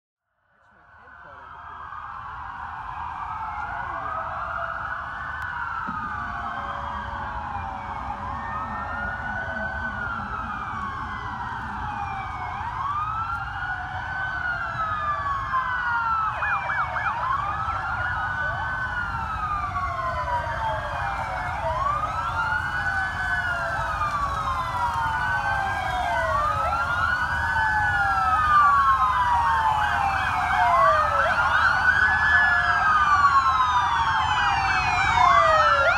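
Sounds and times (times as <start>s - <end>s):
police sirens wailing: 0.5s - 35.9s.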